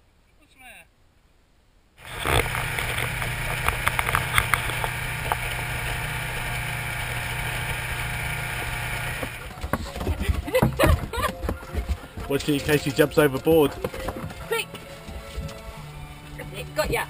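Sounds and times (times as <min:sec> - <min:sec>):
motorboat engine running: 0:02.0 - 0:09.6.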